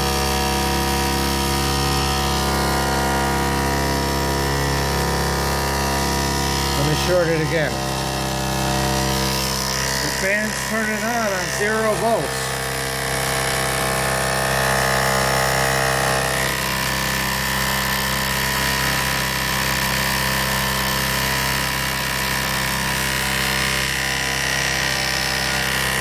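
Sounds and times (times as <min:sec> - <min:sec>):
electrical hum: 0:00.0 - 0:19.1
small motor whirring: 0:00.0 - 0:26.0.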